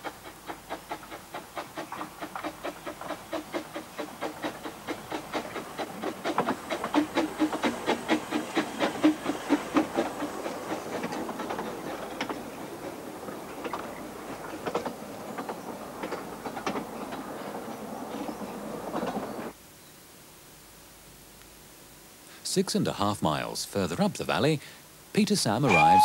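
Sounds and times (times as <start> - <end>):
steam locomotive chuffing: 0.0 - 19.6
wheels clicking over rail joints: 0.0 - 19.6.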